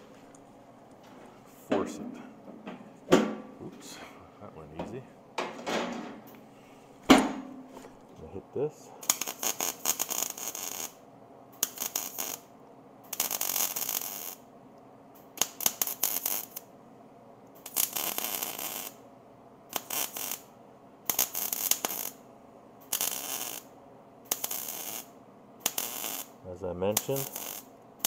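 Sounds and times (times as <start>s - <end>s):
welder arc crackling: 9.0s - 11.0s, 11.6s - 12.5s, 13.1s - 14.4s, 15.2s - 16.7s, 17.6s - 19.0s, 19.7s - 20.5s, 21.1s - 22.2s, 22.8s - 23.7s, 24.3s - 27.7s.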